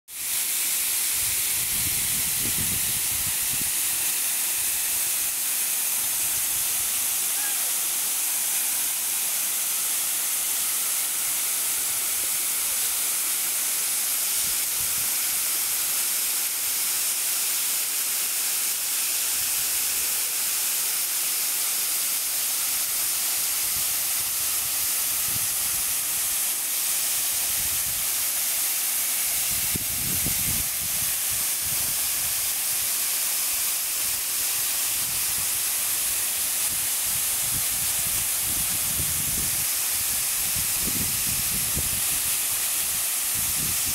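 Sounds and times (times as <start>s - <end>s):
waterfall splashing into a pool: 0.1s - 43.9s.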